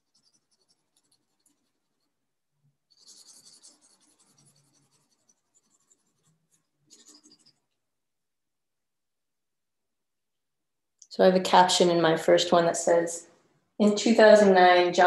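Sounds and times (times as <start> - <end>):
colored pencil scratching on paper: 0.0 - 7.8.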